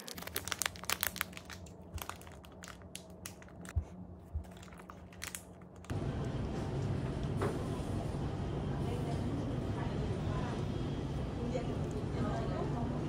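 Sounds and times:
plastic bag crinkling: 0.0s - 3.8s, 4.4s - 5.9s.

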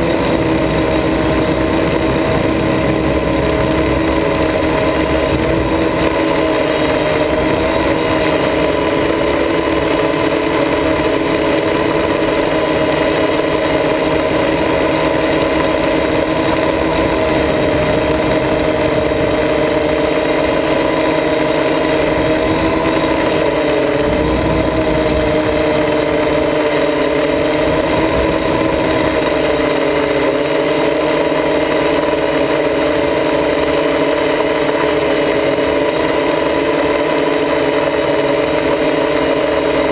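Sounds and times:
quadcopter propellers whining: 0.0s - 39.9s.

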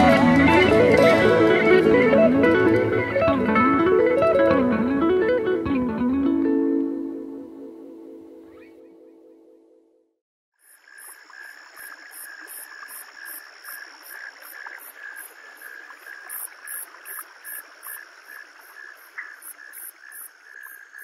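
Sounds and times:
insects chirping: 10.6s - 21.0s.

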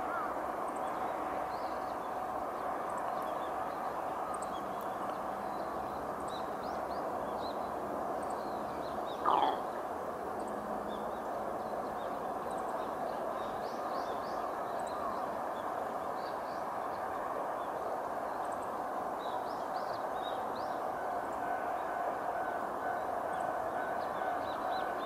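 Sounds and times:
small birds chirping: 9.1s - 9.7s.

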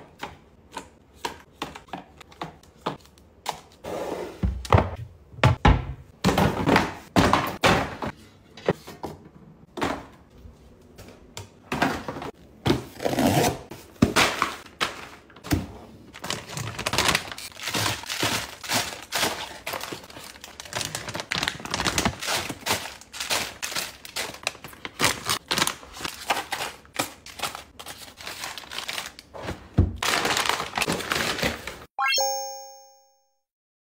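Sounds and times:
plastic wrappers crinkling: 16.2s - 29.4s, 30.0s - 31.8s
short bright chime: 32.0s - 33.3s.

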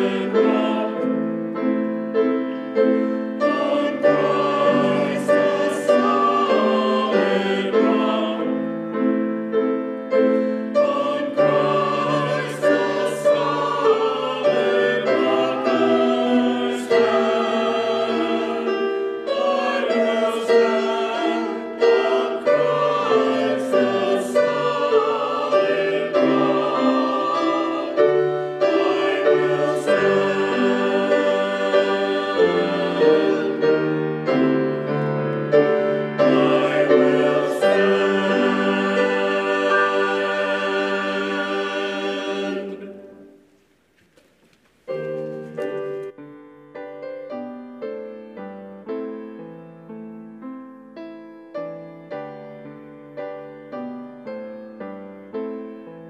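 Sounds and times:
choir singing: 0.0s - 43.5s.

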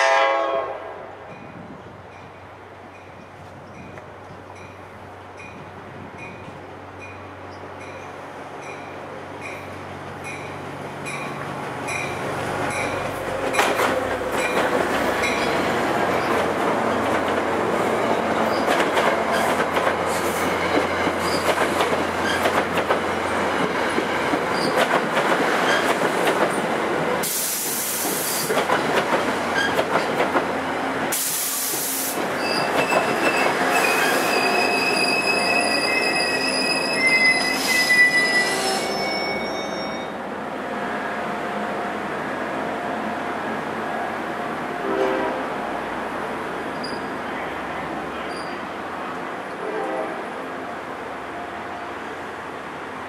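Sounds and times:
train wheels on rails: 1.3s - 49.6s
wheel and brake squeals: 24.5s - 24.8s, 32.4s - 40.2s, 46.7s - 47.2s, 48.2s - 48.6s
hiss bursts: 27.2s - 28.6s, 31.1s - 32.3s.

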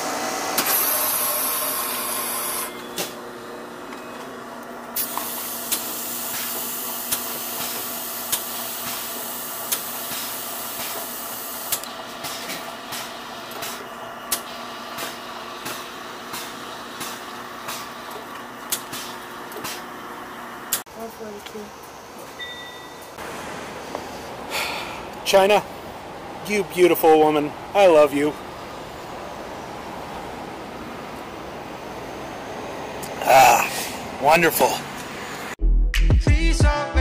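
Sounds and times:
slush machine humming: 0.0s - 21.2s.

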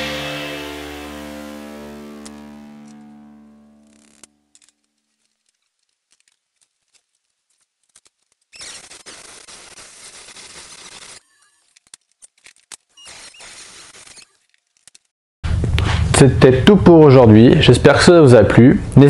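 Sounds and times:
mini drill cutting disc grinding: 8.5s - 11.7s, 12.9s - 14.5s.

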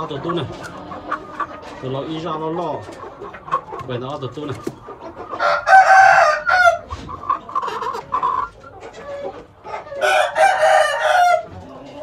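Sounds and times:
rooster clucking: 0.0s - 12.0s
rooster crowing: 5.4s - 6.8s, 10.0s - 11.5s.

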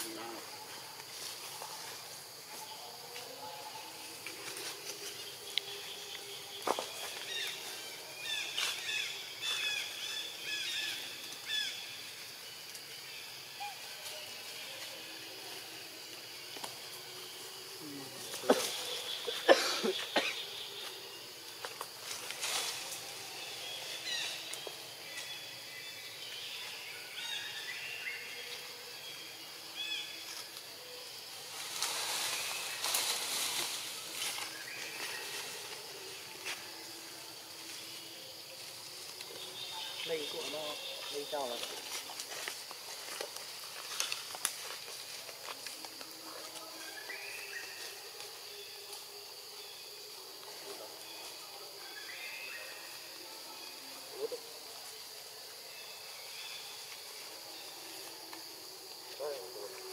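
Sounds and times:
outdoor background hiss: 0.0s - 59.9s
monkeys rustling through leaves: 21.8s - 25.3s, 31.2s - 39.6s, 41.0s - 48.5s.

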